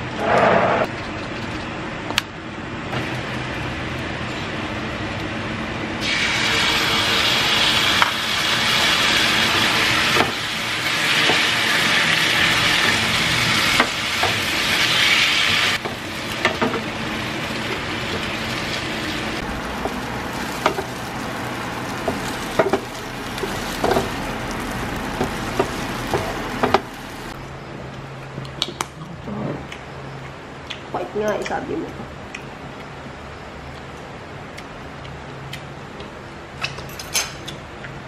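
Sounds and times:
food sizzling in a frying pan: 0:06.0 - 0:27.4.

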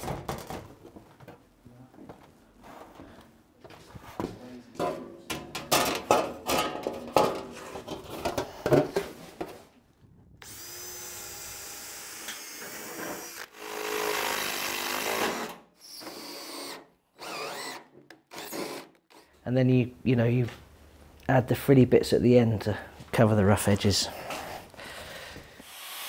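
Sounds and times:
cordless drill boring metal: 0:10.4 - 0:19.3, 0:25.6 - 0:26.0.

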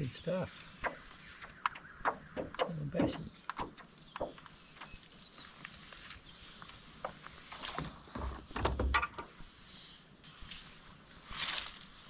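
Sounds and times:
low thumps: 0:00.8 - 0:05.0.

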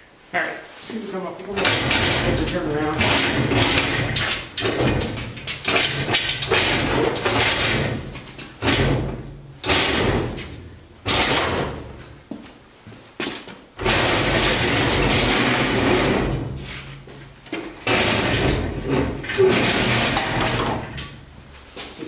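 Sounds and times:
casters rolling over rough concrete: 0:13.2 - 0:22.0.

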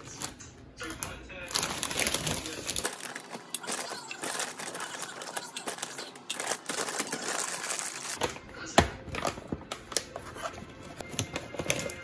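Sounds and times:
plastic bag crinkling: 0:00.0 - 0:08.3.

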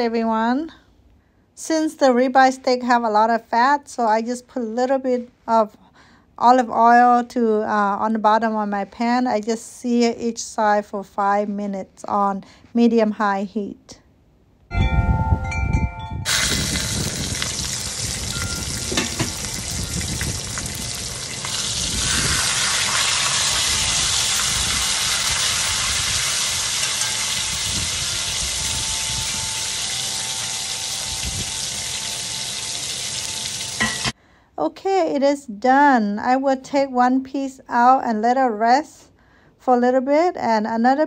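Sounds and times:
steaks sizzling in a pan: 0:16.3 - 0:34.1
glass lid ringing: 0:18.3 - 0:20.0, 0:26.6 - 0:32.6, 0:33.4 - 0:34.1.

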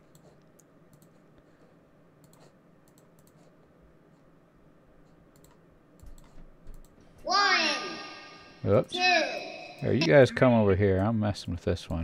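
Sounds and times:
mouse and keyboard clicks: 0:00.0 - 0:01.3, 0:02.2 - 0:03.6, 0:05.3 - 0:07.0.

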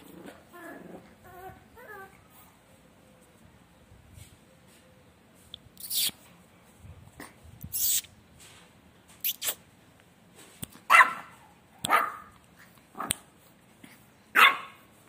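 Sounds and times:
puppy barking: 0:10.9 - 0:12.4, 0:14.3 - 0:14.8.

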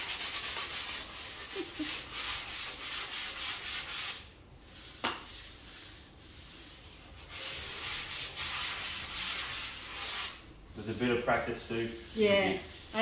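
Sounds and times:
sanding block on plaster: 0:00.0 - 0:13.0.

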